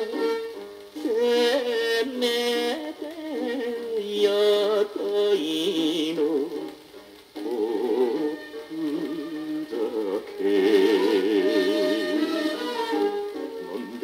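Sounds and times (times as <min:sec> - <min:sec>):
instrumental pop music from vinyl: 0:00.0 - 0:14.0.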